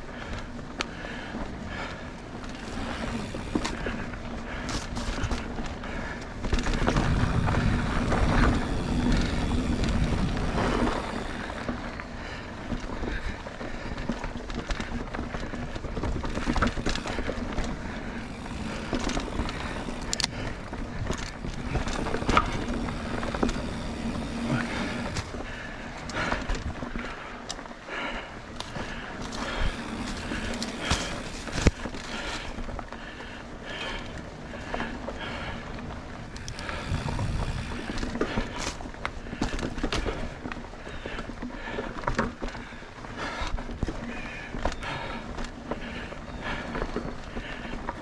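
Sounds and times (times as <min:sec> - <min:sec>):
bike tyres rolling over dirt: 0:00.0 - 0:48.0
bike rattles and knocks: 0:00.1 - 0:48.0.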